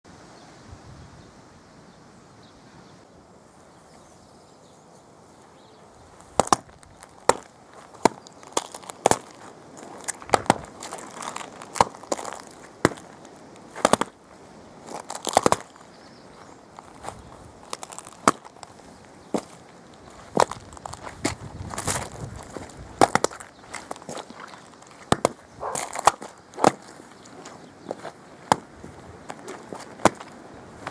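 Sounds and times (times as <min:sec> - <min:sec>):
faint background noise: 0:00.1 - 0:30.9
eggshells cracking underfoot: 0:06.2 - 0:30.9.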